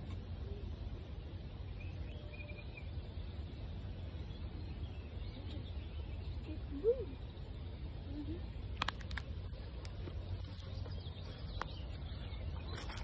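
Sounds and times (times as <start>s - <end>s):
faint bird chirps: 0.2s - 8.7s.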